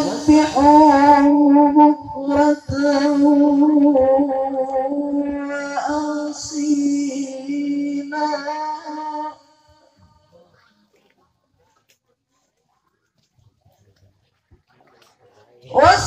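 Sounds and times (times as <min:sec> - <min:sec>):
man reciting melodically into microphone: 0:00.0 - 0:10.4, 0:15.6 - 0:16.0.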